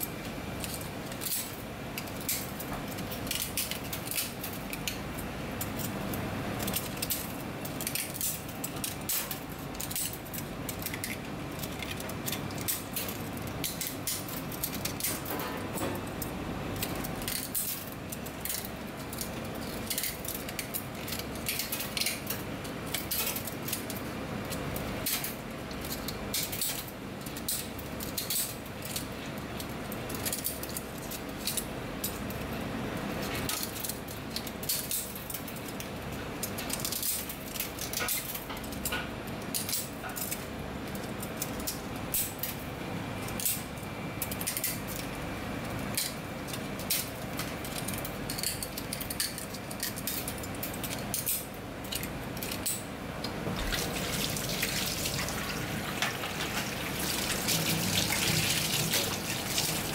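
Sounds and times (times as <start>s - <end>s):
shears cracking shells: 45.8s - 59.9s.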